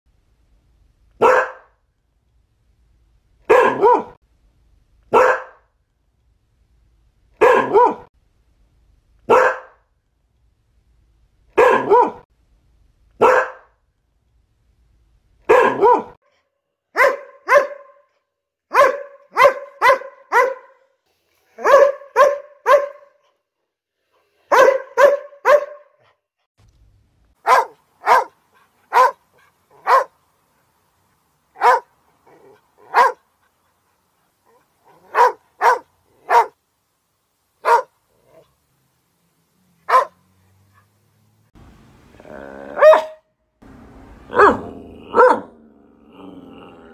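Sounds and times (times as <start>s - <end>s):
dog barking: 1.2s - 1.8s, 3.5s - 4.2s, 5.1s - 5.7s, 7.4s - 8.1s, 9.3s - 9.8s, 11.6s - 12.3s, 13.2s - 13.7s, 15.4s - 16.2s, 16.9s - 23.4s, 24.4s - 26.2s, 27.4s - 30.2s, 31.5s - 33.3s, 34.4s - 36.6s, 37.6s - 38.5s, 39.8s - 41.0s, 42.7s - 43.3s, 44.3s - 45.6s.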